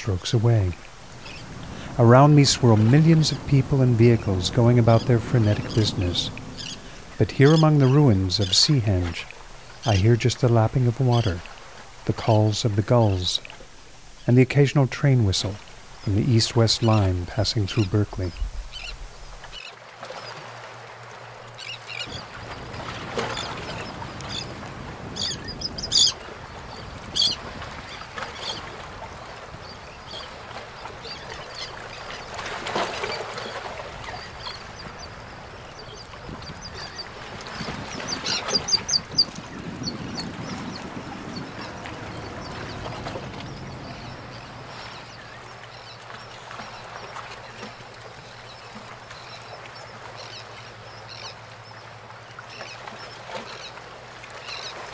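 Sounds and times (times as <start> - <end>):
water: 0.0 - 54.9
gulls and terns calling: 0.1 - 13.4, 15.4 - 20.4, 21.6 - 28.7, 29.6 - 47.7
low hum: 0.7 - 8.4.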